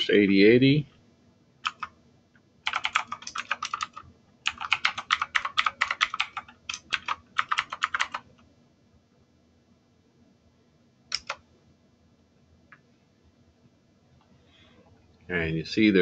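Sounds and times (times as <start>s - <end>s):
keyboard key clicks: 11.1s - 11.4s.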